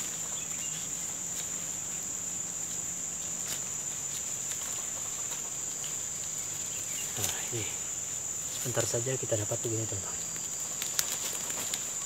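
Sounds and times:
insects droning: 0.0 - 12.0
rustling of seedlings pulled up: 8.5 - 12.0.

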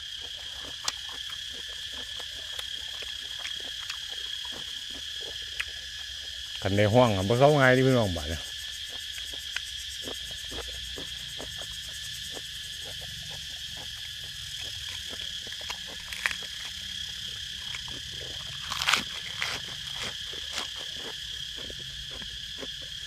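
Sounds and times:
chewing and crunching food: 0.0 - 23.0
insects droning: 0.0 - 23.0.

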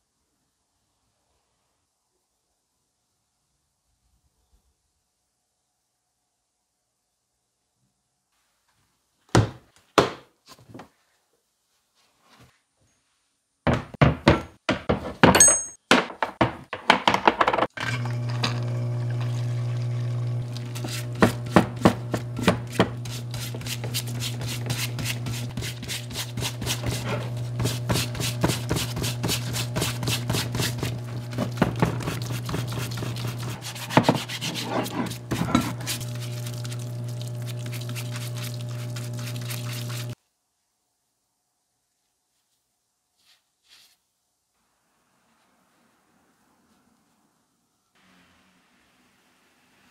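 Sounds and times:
pump humming: 18.0 - 23.0, 26.7 - 40.2
fluid running: 18.0 - 40.2
stiff brush scrubbing: 20.4 - 40.2.

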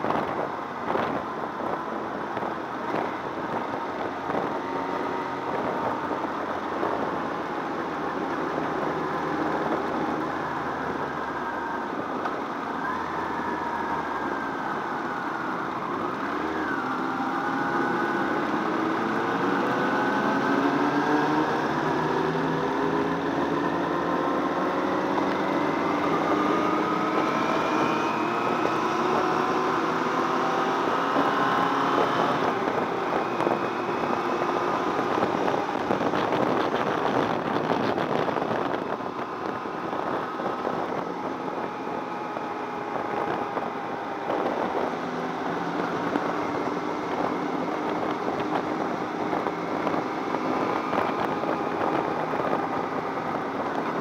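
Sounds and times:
motorcycle engine accelerating: 0.0 - 54.0
road and wind noise: 0.0 - 54.0.

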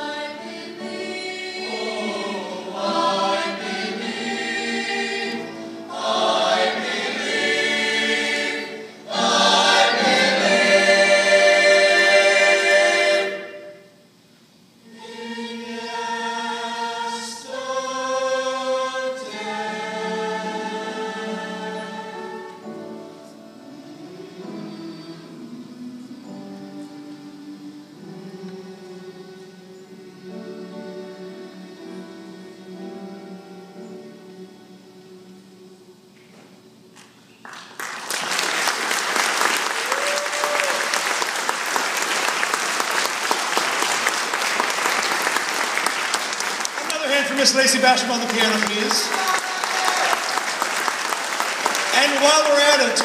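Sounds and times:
choir singing held chords: 0.0 - 14.2, 14.8 - 36.9
audience applauding: 37.4 - 53.0.

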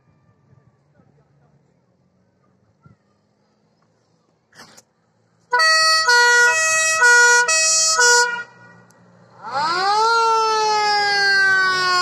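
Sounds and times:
two-tone siren: 5.5 - 8.8, 9.4 - 12.0
siren wail rising: 5.6 - 12.0.

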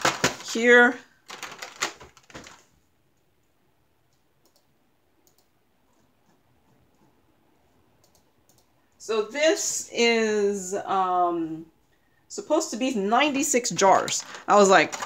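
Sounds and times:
plastic jars clicking and rattling: 1.3 - 2.6, 14.0 - 15.0.

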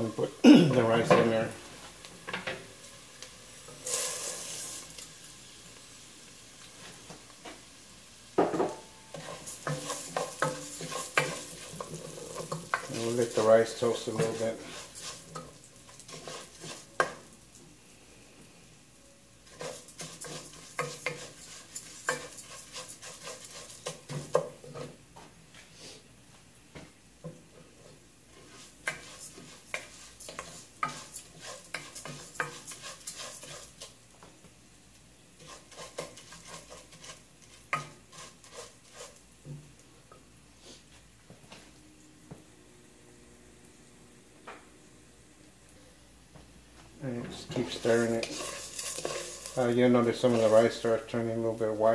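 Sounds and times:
rice sizzling: 0.0 - 41.9, 42.8 - 51.9
wooden spoon scraping rice in pot: 9.1 - 17.2, 19.4 - 25.0, 27.7 - 34.0, 35.4 - 39.3, 47.3 - 50.9.

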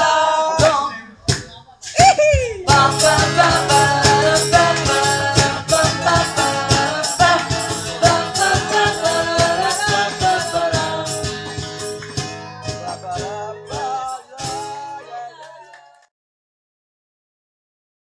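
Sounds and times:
high voice singing wordless line: 0.0 - 11.3
drum kit beat: 0.6 - 14.8.

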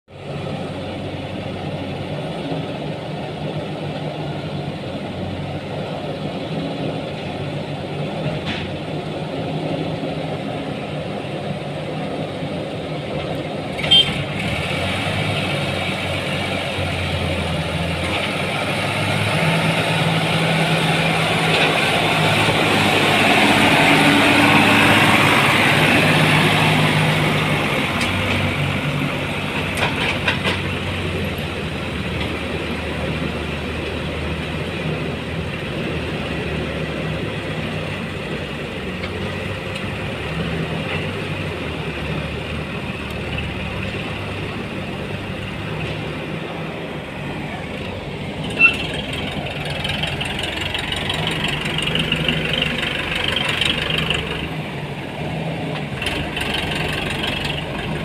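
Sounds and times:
diesel engines running: 0.1 - 58.0.

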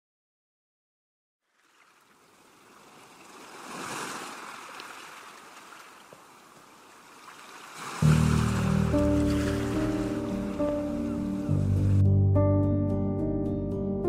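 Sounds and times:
sea wave washing in: 1.5 - 12.0.

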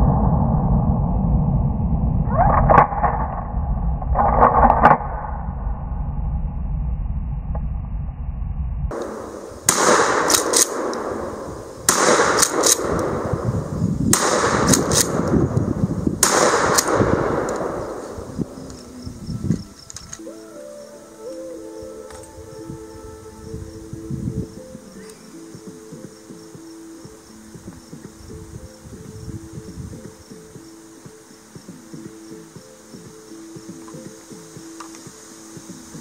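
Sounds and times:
shotgun shots: 9.0 - 15.6, 16.2 - 18.7
shotgun action clacking: 9.7 - 11.1, 11.9 - 13.1, 14.2 - 15.4.

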